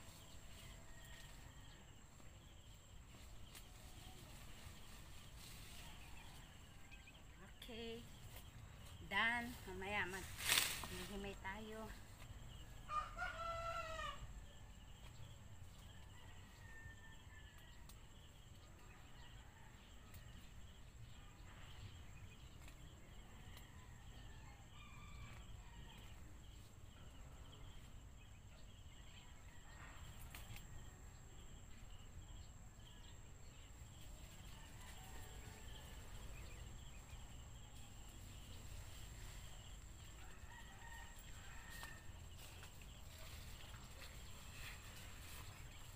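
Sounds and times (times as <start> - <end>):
faint outdoor ambience: 0.0 - 45.9
rooster crowing: 12.9 - 14.3.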